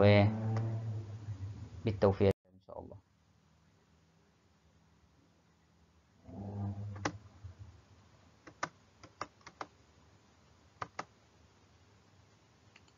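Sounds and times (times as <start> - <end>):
low hum: 0.0 - 8.1
keyboard and mouse clicks: 6.8 - 7.2, 8.4 - 9.7, 10.8 - 11.1.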